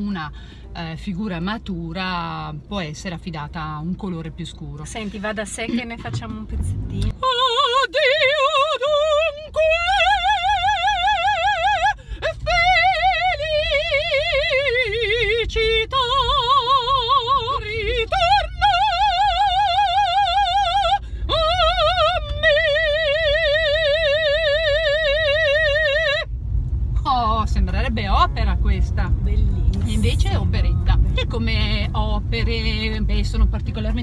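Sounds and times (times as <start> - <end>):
moving car rumble: 0.0 - 34.0
woman singing operatically: 7.0 - 26.3.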